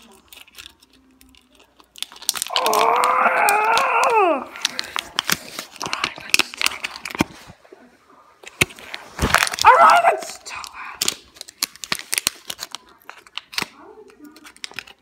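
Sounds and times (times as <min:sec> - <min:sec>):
plastic packaging crinkling: 0:00.0 - 0:07.6, 0:08.4 - 0:15.0.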